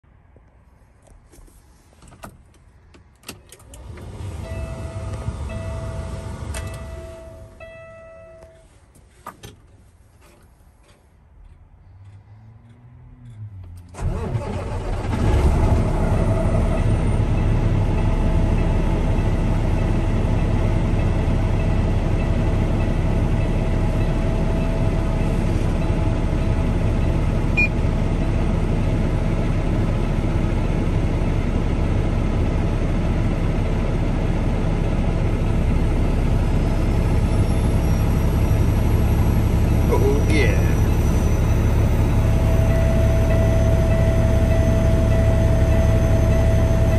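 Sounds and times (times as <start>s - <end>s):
faint turbocharger whine: 3.5s - 8.6s, 34.6s - 46.9s
diesel engine idling: 3.7s - 8.8s, 11.4s - 46.9s.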